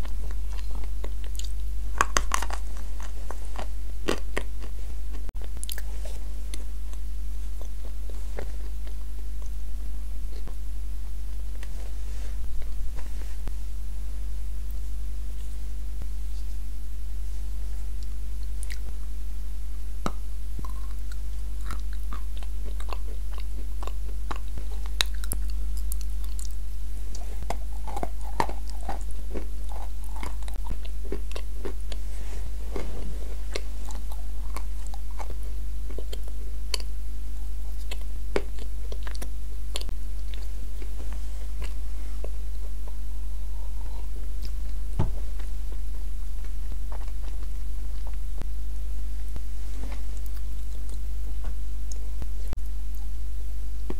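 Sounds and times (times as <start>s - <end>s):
crunching and chewing clay: 0.0s - 10.6s, 17.8s - 19.1s, 20.0s - 48.5s
low electrical hum: 0.0s - 53.9s.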